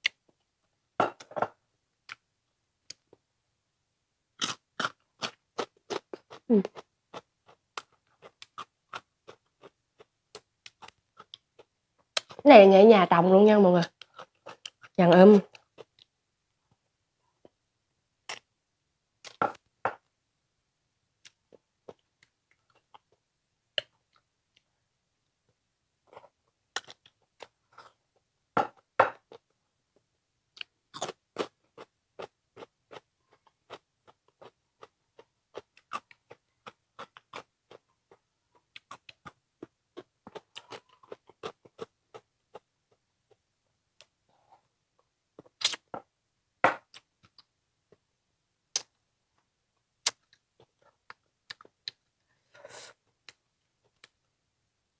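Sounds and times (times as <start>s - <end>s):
person chewing and crunching: 4.4s - 12.4s, 13.8s - 16.1s, 26.1s - 28.0s, 30.6s - 43.4s, 45.4s - 46.0s
mouth clicks: 45.6s - 45.9s, 48.7s - 49.0s.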